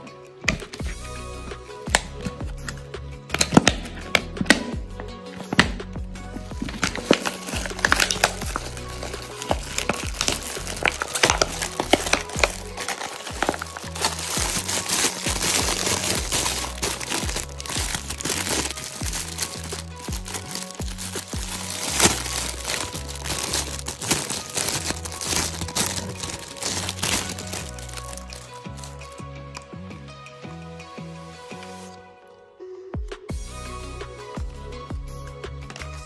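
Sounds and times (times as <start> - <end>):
background music: 0.0 - 36.0
plastic bag crackling: 6.4 - 29.2
foil wrapper crinkling: 6.5 - 29.2.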